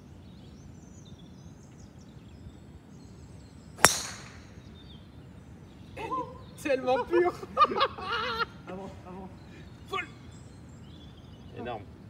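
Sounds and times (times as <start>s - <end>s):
faint birdsong: 0.0s - 12.0s
golf club striking ball: 3.8s - 4.7s.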